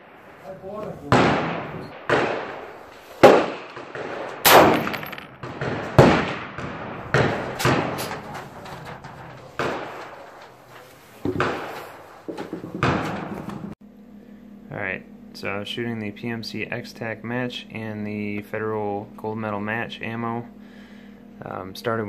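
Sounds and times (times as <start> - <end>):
rifle shots echoing: 0.0 - 12.2.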